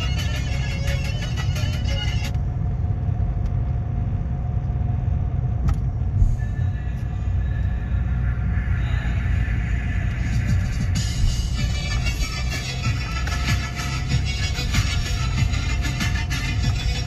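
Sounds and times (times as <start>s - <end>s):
background music: 0.0s - 2.3s, 8.1s - 17.0s
car engine and tyres rumbling: 0.0s - 17.0s.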